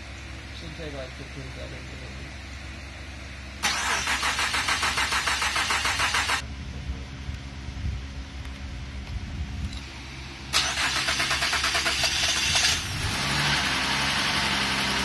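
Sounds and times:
starter motor cranking: 3.6s - 6.4s, 10.5s - 13.0s.

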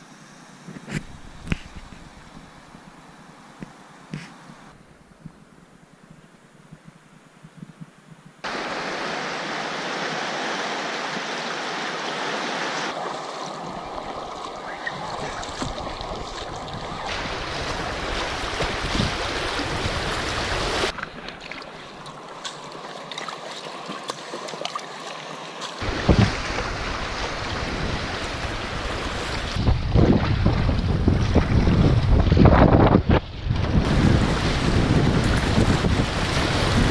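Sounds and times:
river water rushing and splashing: 8.4s - 32.9s, 33.7s - 36.9s
wind buffeting microphone: 13.6s - 21.0s, 25.8s - 36.9s.

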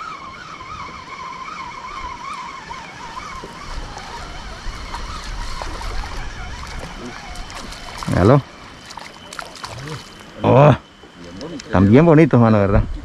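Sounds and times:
fishing reel whining: 0.0s - 12.7s.

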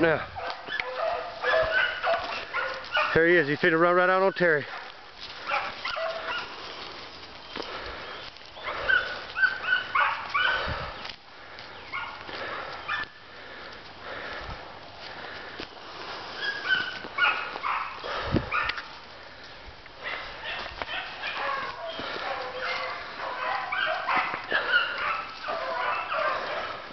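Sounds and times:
dogs yipping and baying: 0.0s - 3.2s, 4.4s - 6.6s, 7.5s - 11.1s, 11.7s - 13.2s, 16.4s - 19.0s, 20.0s - 26.9s.

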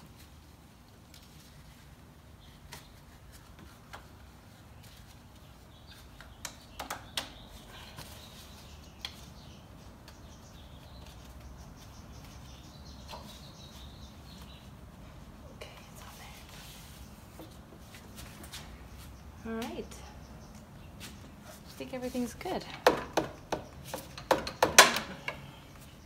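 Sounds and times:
clicks and knocks of handled parts: 22.7s - 25.5s.

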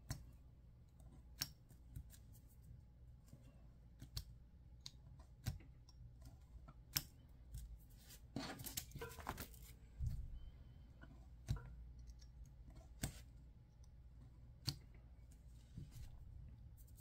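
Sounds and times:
paper rustling: 7.9s - 9.8s.

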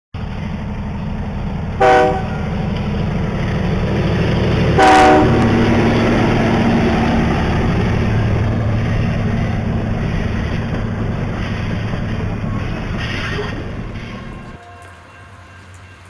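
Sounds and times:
train rumbling: 0.2s - 16.0s
locomotive air horn blasts: 1.8s - 2.5s, 4.8s - 5.5s.

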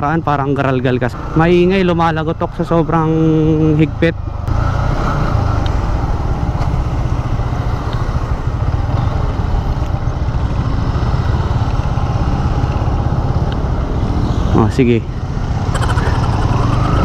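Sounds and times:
city traffic: 0.0s - 17.0s
motorcycle engine running: 4.2s - 14.4s.

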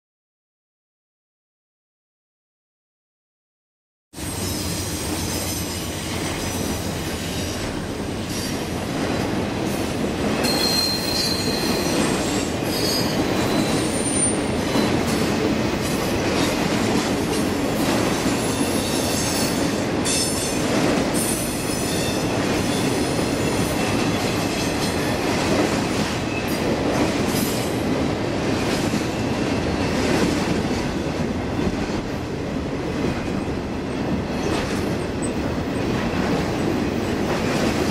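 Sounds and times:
high-pitched flange squeal: 10.4s - 12.0s.

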